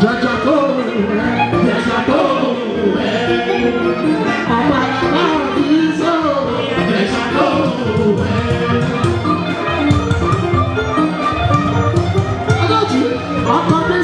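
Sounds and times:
person singing: 0:00.0 - 0:10.3
held instrument tones: 0:00.0 - 0:14.0.

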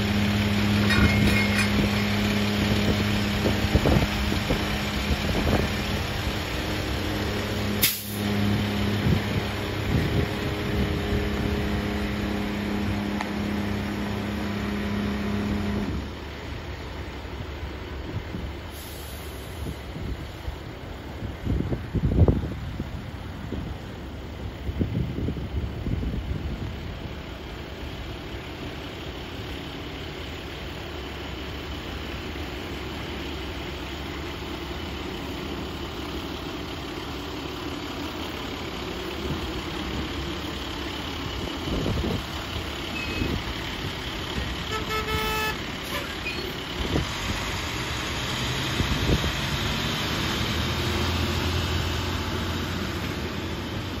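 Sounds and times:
truck engine idling: 0:00.0 - 0:54.0
horn toot: 0:44.6 - 0:46.5.

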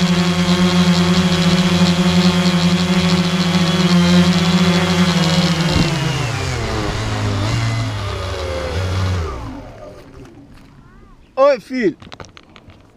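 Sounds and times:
drone motors humming: 0:00.0 - 0:11.4.

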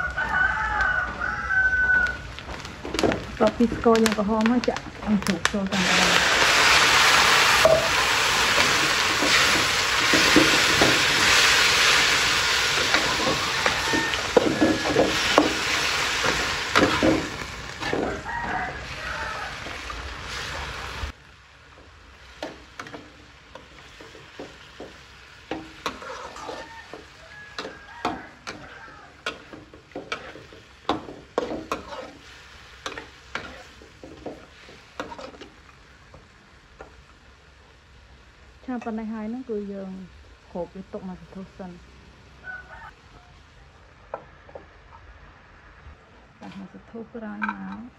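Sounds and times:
meat sizzling in oil: 0:00.0 - 0:41.0
metal spatula scraping a wok: 0:05.8 - 0:21.1, 0:22.2 - 0:35.8.

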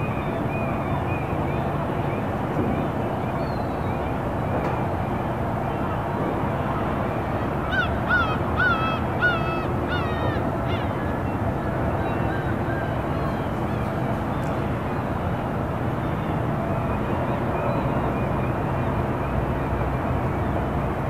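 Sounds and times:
low harbour and traffic rumble: 0:00.0 - 0:21.0
bird calling: 0:07.6 - 0:15.1.

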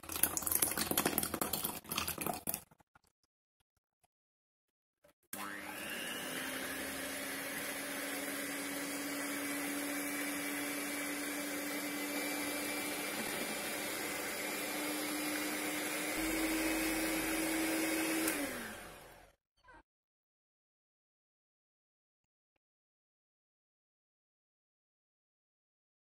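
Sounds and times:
hand mixer motor hum: 0:05.4 - 0:19.4.

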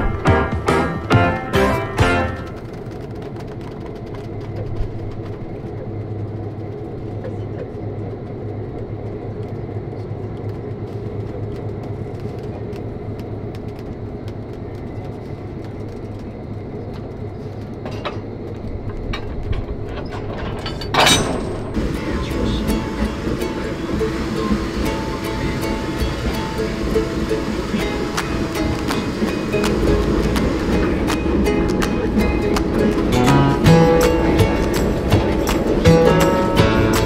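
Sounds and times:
diesel locomotive engine drone: 0:00.0 - 0:37.0
train rumbling on rails: 0:00.0 - 0:37.0
loud rush: 0:21.6 - 0:37.0.

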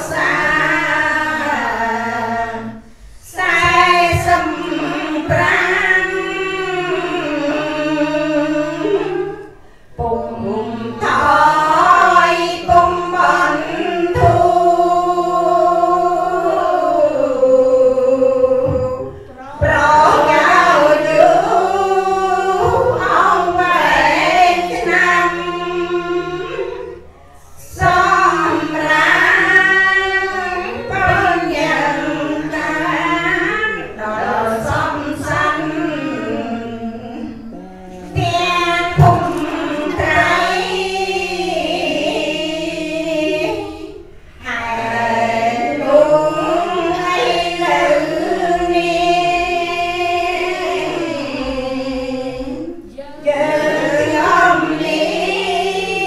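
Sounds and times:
woman chanting into a microphone: 0:00.0 - 0:09.4, 0:10.0 - 0:16.2, 0:27.6 - 0:56.0
women chanting in unison: 0:00.0 - 0:56.0.

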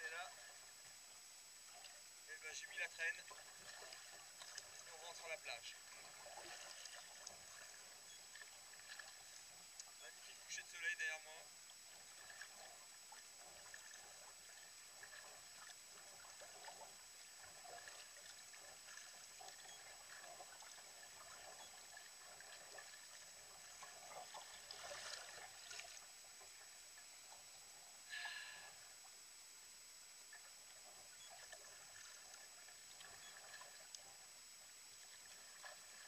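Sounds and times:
kayak paddle dipping and dripping: 0:01.6 - 0:10.9, 0:11.5 - 0:29.2, 0:30.2 - 0:36.0
water splash: 0:17.4 - 0:26.1.

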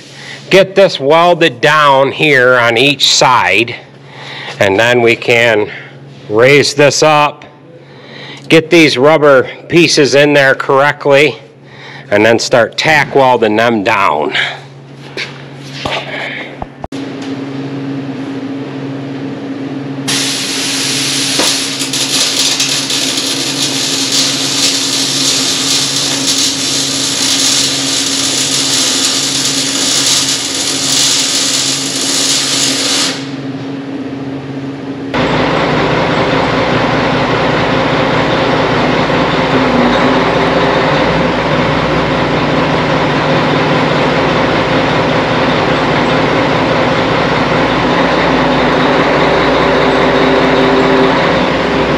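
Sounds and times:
low machine drone: 0:15.9 - 0:51.9
welder humming: 0:19.0 - 0:51.9
arc welding crackling hiss: 0:20.1 - 0:33.4.

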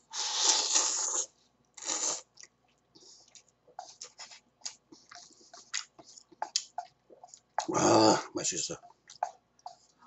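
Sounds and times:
person slurping noodles: 0:00.1 - 0:02.3
wet chewing smacks: 0:02.3 - 0:07.7.

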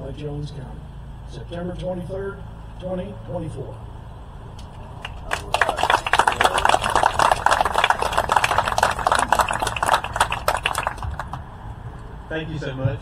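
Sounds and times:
audience applauding: 0:05.0 - 0:11.4.

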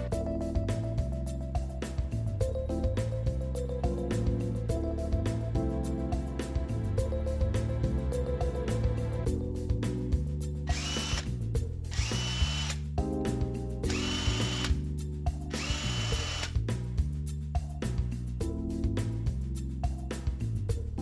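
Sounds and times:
impact wrench motor whine: 0:10.7 - 0:11.3, 0:11.9 - 0:12.8, 0:13.9 - 0:14.8, 0:15.5 - 0:16.6.

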